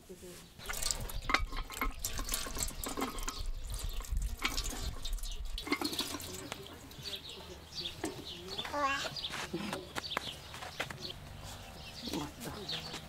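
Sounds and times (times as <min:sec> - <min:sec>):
water splashing in a basin: 0:00.6 - 0:07.3.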